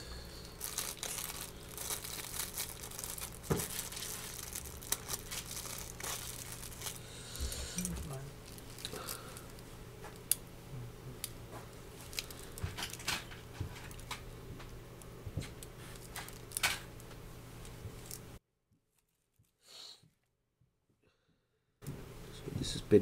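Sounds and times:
plastic bag crinkling: 0:00.4 - 0:10.4, 0:11.7 - 0:14.2, 0:15.4 - 0:19.5.

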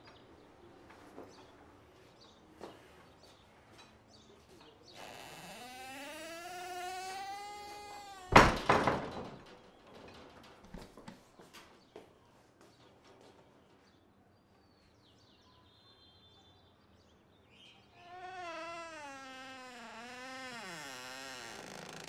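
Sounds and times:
wooden door banging shut: 0:05.0 - 0:09.5.

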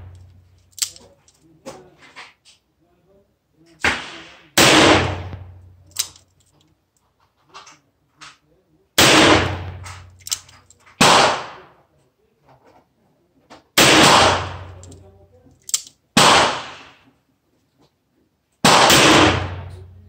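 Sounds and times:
revolver gunshots: 0:03.8 - 0:05.9, 0:09.0 - 0:10.2, 0:11.0 - 0:11.7, 0:13.8 - 0:14.8, 0:16.2 - 0:17.0, 0:18.6 - 0:19.8.

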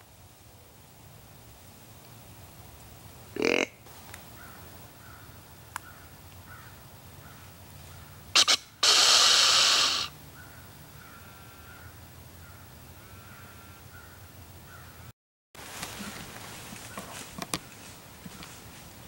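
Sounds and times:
deer snorting: 0:03.3 - 0:03.8, 0:08.4 - 0:10.1
deer hissing wheeze: 0:08.3 - 0:10.2.

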